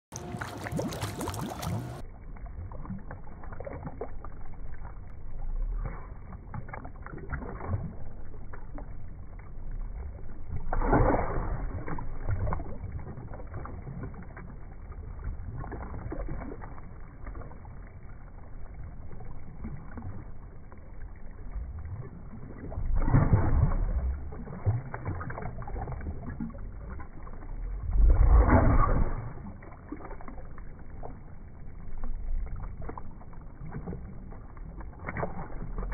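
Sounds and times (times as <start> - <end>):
loud water splashing bursts: 0.1 - 2.0
pool water splashing and bubbling: 0.1 - 35.9.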